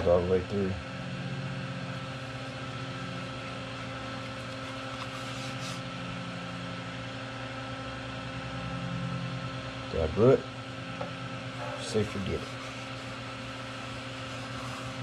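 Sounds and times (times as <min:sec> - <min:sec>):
electric motor humming: 0:00.0 - 0:15.0.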